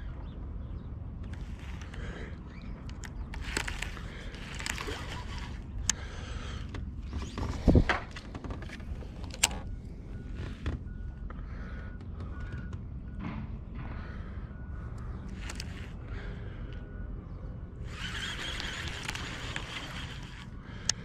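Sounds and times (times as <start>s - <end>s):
fishing reel clicks: 2.9s - 6.0s, 15.3s - 16.0s, 17.8s - 21.0s.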